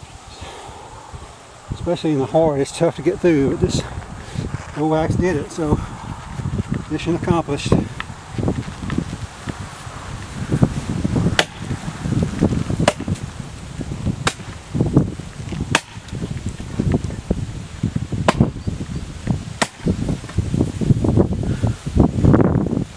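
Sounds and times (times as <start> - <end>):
wind rustling grass: 0.0 - 22.9
axe chopping wood: 11.4 - 11.8, 12.8 - 13.3, 14.2 - 14.6, 15.6 - 16.2, 18.2 - 18.5, 19.6 - 20.4.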